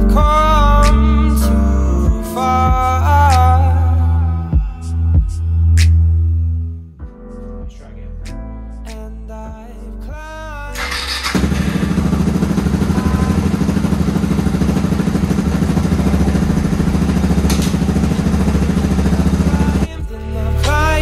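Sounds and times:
motorcycle engine running: 10.8s - 19.9s.

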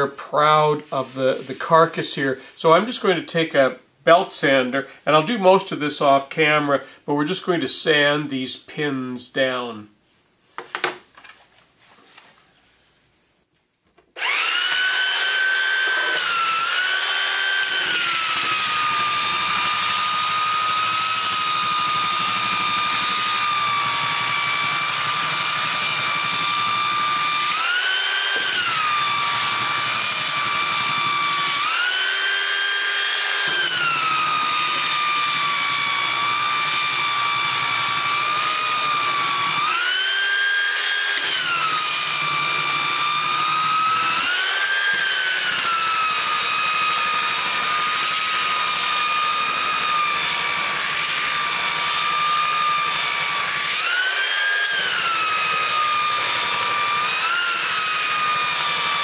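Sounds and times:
belt sander motor whine: 14.2s - 59.0s.

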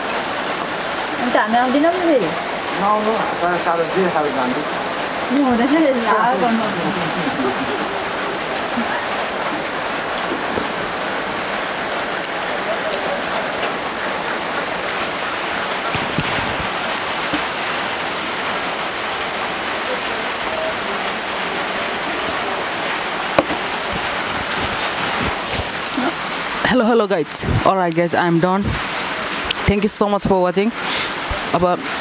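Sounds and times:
heavy rain on a tin roof: 0.0s - 32.0s
sharp knock: 23.4s - 23.6s.

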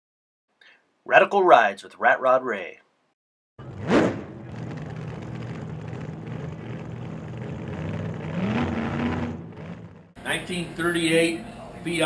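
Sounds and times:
car engine revving and idling: 3.6s - 10.2s.

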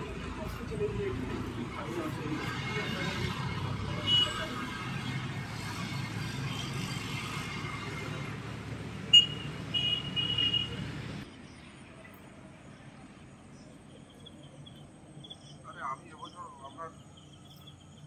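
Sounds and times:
road traffic noise: 0.0s - 18.0s.

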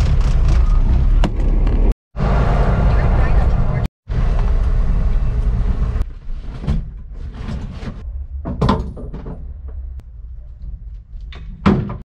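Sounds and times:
low hum: 0.0s - 11.6s
door knocks and clunks: 8.4s - 10.0s, 11.3s - 12.0s.

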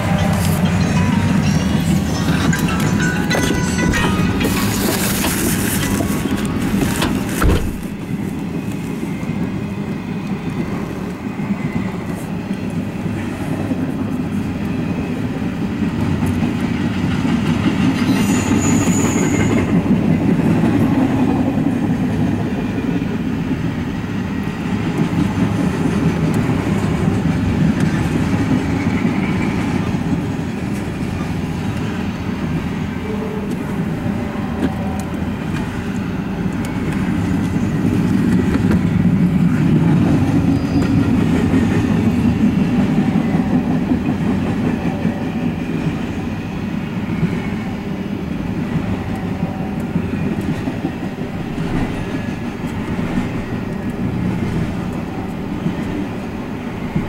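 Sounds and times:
brief high-pitched tone: 0.0s - 6.2s
steel train wheels on rail: 0.0s - 57.0s.

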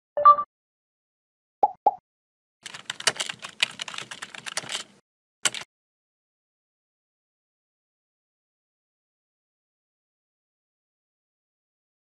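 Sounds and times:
keyboard key clicks: 2.7s - 5.7s.

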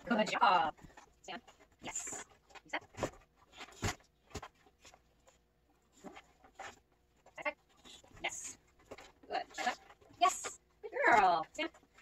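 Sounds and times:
dog paws tapping on rubber mat: 0.0s - 12.0s.

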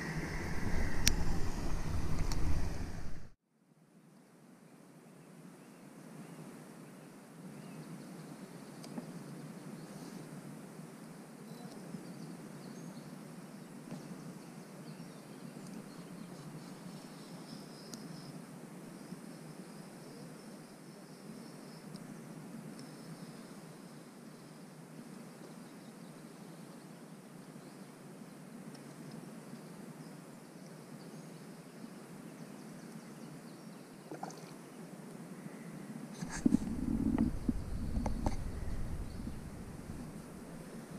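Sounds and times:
steady low rumble: 0.0s - 3.4s, 36.2s - 40.9s
faint outdoor background: 0.0s - 40.9s.

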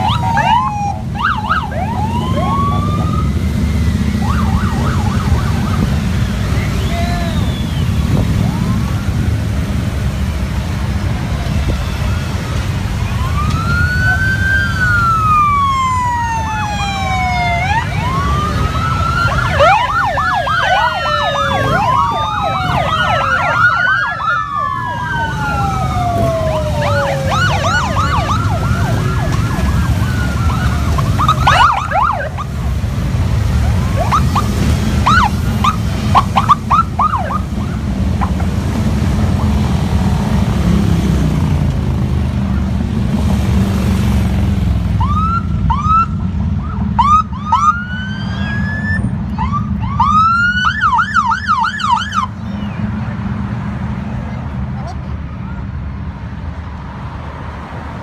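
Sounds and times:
siren chirps: 0.0s - 9.3s, 11.6s - 32.6s, 33.6s - 38.4s, 45.0s - 52.5s
police sirens wailing and yelping: 0.0s - 53.1s
motorcycle engines rumbling: 0.0s - 58.0s.

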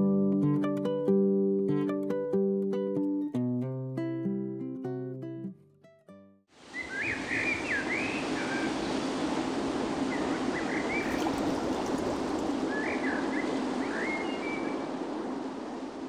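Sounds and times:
rushing water: 6.6s - 16.0s
songbird chirping: 6.7s - 8.9s, 10.1s - 15.0s.

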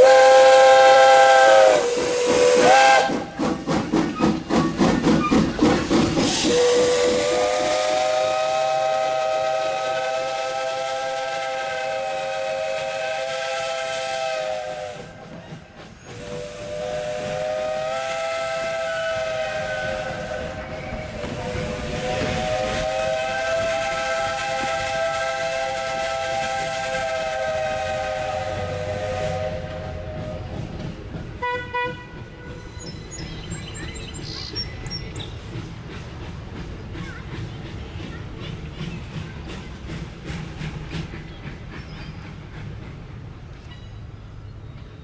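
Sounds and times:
steam whistle blasts: 0.0s - 3.3s, 6.3s - 15.2s, 16.1s - 30.5s, 31.4s - 32.6s
steam hissing: 0.0s - 31.5s, 32.1s - 45.0s
steam locomotive chuffing: 0.0s - 45.0s.

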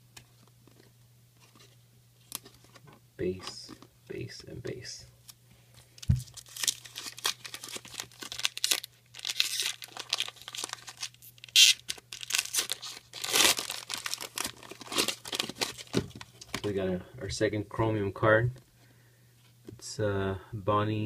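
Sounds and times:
foil wrapper tearing and crinkling: 6.2s - 16.6s.

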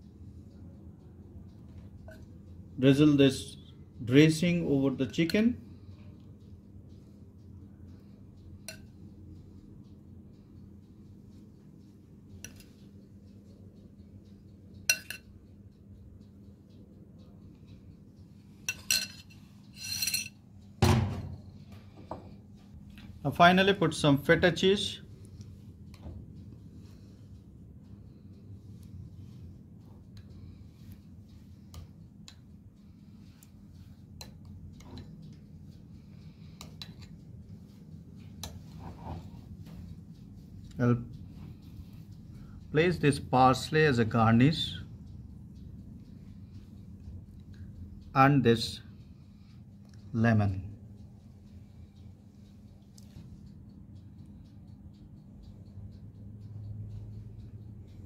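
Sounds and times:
low steady hum: 0.0s - 58.0s
metal spoon clinking on dish: 8.7s - 8.9s, 14.9s - 15.3s, 18.7s - 20.4s
spoon tapping bowl and plate: 8.7s - 8.9s, 14.9s - 15.3s
spoon scraping: 18.7s - 20.4s.

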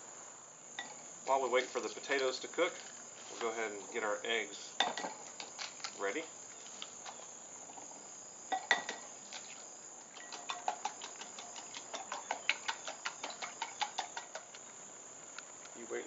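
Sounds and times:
insects chirping: 0.0s - 16.0s
whisk clicking against glass bowl: 10.2s - 14.6s.

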